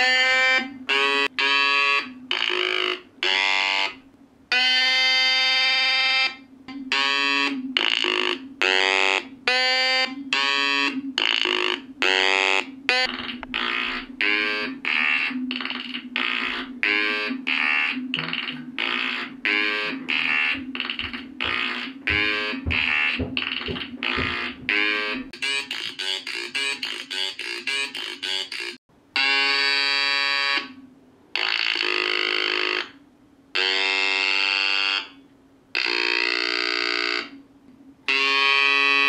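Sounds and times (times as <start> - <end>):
buzzy electronic tones: 6.9 - 29.7.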